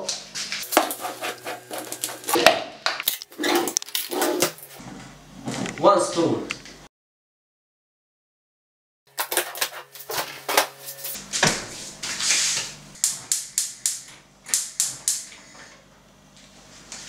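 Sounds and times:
gas cooker igniter clicking: 13.0 - 15.3.

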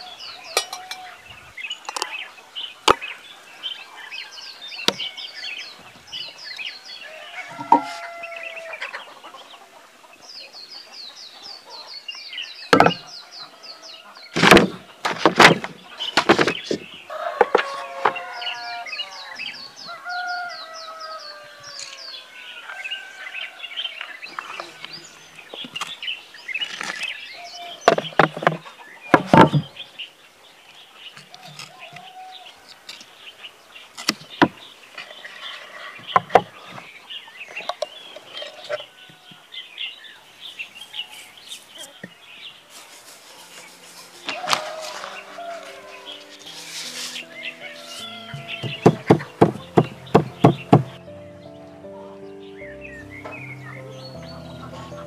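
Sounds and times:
chickens clucking and crowing: 0.0 - 26.3, 27.3 - 30.2, 34.5 - 55.0
small birds twittering: 0.0 - 55.0
knocks of blocks being set: 14.4 - 16.8, 48.4 - 51.0.

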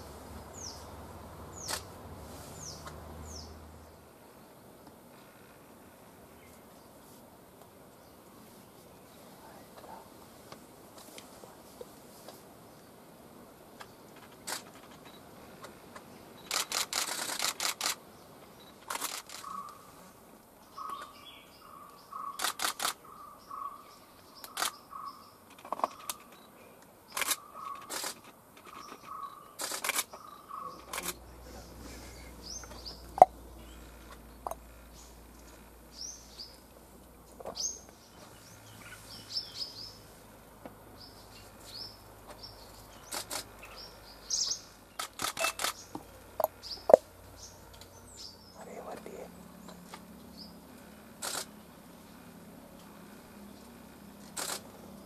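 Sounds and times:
small birds chirping: 0.0 - 5.3, 13.7 - 55.0
camera shutters clicking: 16.4 - 18.0, 18.8 - 19.6, 22.4 - 23.0, 24.5 - 24.8, 27.1 - 28.9, 29.6 - 30.2, 30.8 - 31.2, 43.0 - 43.5, 45.0 - 45.8, 51.2 - 51.5, 54.3 - 54.7.

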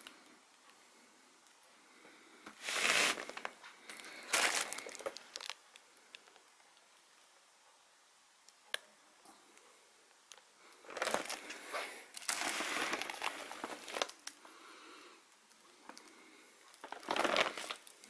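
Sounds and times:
plastic shrink-wrap crinkling: 2.6 - 6.4, 10.8 - 14.4, 16.7 - 18.0.

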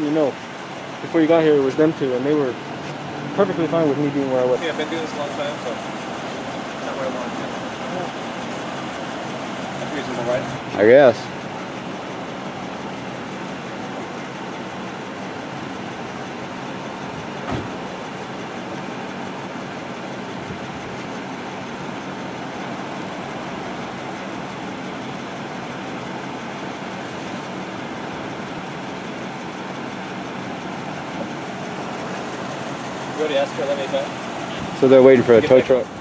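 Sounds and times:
road traffic rumble: 0.0 - 36.0
short knock: 17.4 - 17.8.

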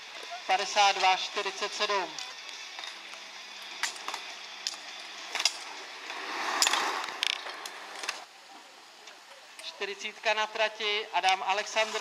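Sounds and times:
skate wheels rolling on asphalt: 0.0 - 8.3.

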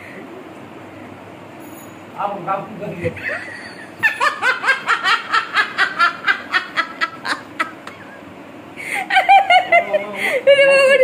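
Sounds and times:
person laughing hard: 3.2 - 8.3, 8.9 - 10.8.

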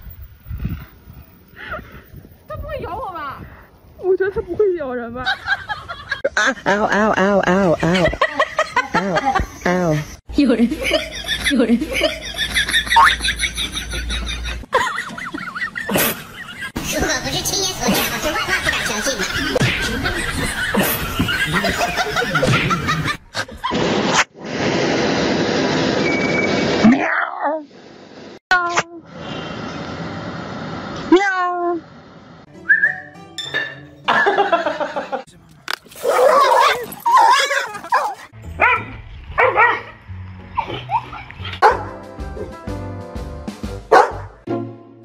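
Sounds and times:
people laughing: 5.2 - 9.8, 10.6 - 16.8, 17.8 - 23.7, 34.1 - 35.3, 40.6 - 41.6
background music: 32.5 - 35.2, 38.4 - 45.0.

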